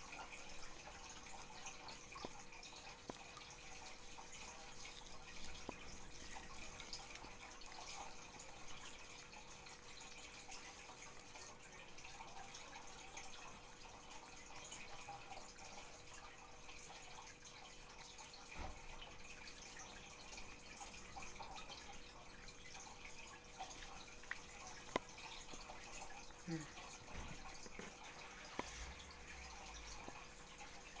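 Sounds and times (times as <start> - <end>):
small ticks: 0.0 - 13.5
faint steady hum: 0.0 - 31.0.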